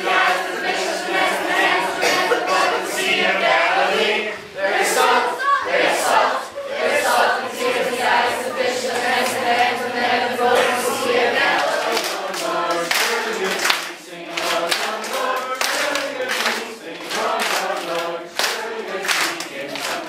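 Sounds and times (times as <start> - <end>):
children singing in unison: 0.0 - 20.0
hand claps: 11.6 - 20.0.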